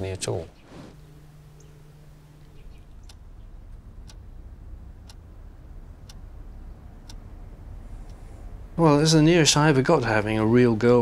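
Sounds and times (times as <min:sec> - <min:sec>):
low steady hum: 0:00.0 - 0:11.0
clock ticking: 0:01.0 - 0:08.2.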